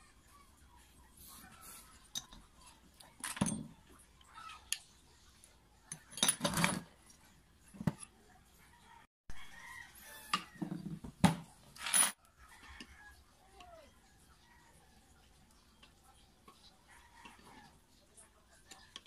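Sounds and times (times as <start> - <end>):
metal parts clinking on table: 5.9 - 6.9, 11.8 - 12.2.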